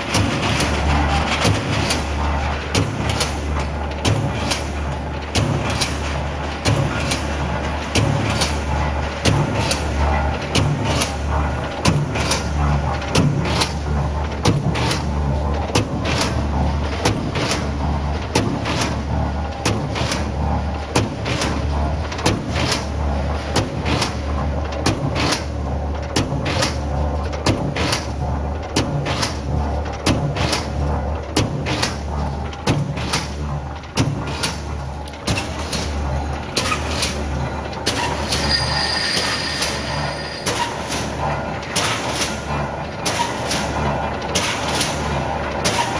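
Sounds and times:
sharp metallic strikes: 38.3 - 41.2.

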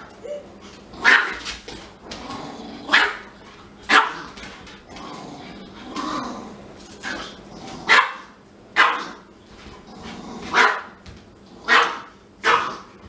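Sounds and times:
dog barking: 1.0 - 1.4, 2.9 - 3.3, 3.9 - 4.2, 7.9 - 9.2, 10.5 - 11.0, 11.7 - 12.9.

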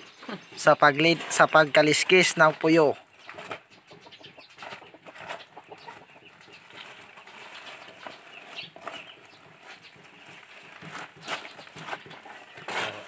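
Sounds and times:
paper sack crinkling and rustling: 4.6 - 13.0.

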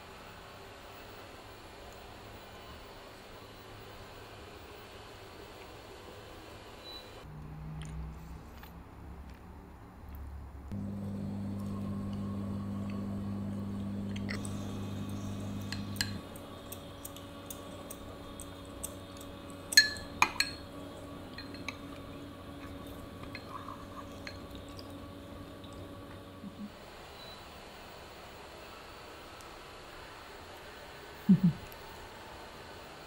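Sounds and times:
low steady hum: 10.7 - 26.8
spoon clinking against cup: 19.7 - 20.7, 21.4 - 21.9.

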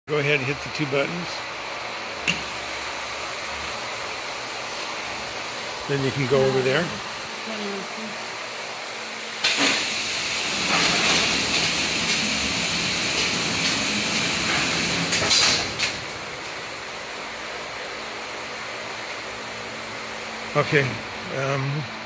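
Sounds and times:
machine and fan hum: 0.1 - 22.0
hiss of rushing air: 9.4 - 17.0
machine clicks and knocks: 13.1 - 16.6.

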